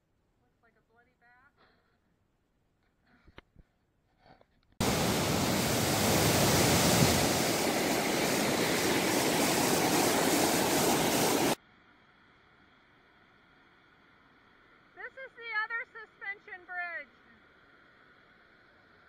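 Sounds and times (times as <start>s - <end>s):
waterfall roaring: 4.8s - 11.6s.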